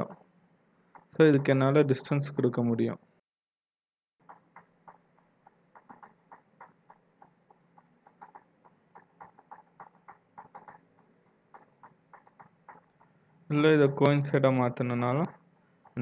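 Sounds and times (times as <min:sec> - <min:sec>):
mouse and keyboard clicking: 0:04.2 - 0:13.1.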